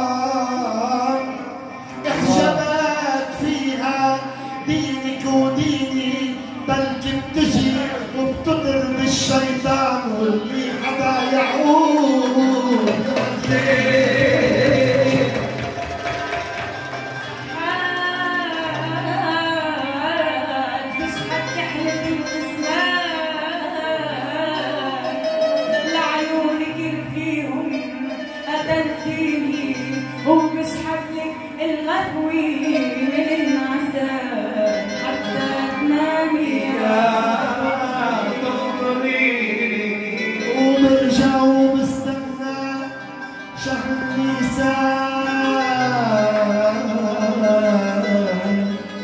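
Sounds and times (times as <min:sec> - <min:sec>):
woman singing into a microphone: 0:00.0 - 0:08.5, 0:17.6 - 0:43.0
instrumental accompaniment: 0:00.0 - 0:49.0.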